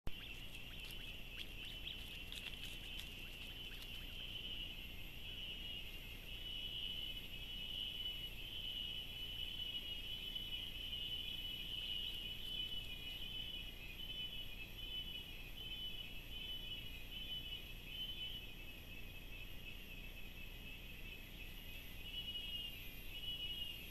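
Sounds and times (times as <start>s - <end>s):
faint ticks and rustles: 0.1s - 4.8s
insects trilling: 0.1s - 23.9s.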